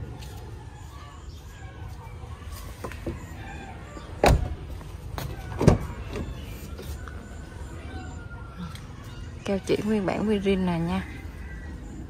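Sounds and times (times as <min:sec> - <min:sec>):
car door slamming shut: 0:04.2 - 0:04.6.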